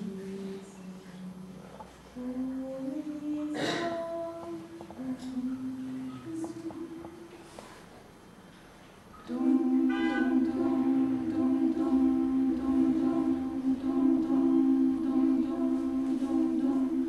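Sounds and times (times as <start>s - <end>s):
choir singing a chord: 9.3s - 17.0s.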